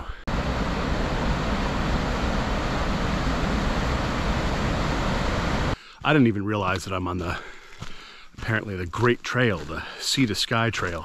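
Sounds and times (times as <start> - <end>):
steady rushing noise: 0.0 - 6.9.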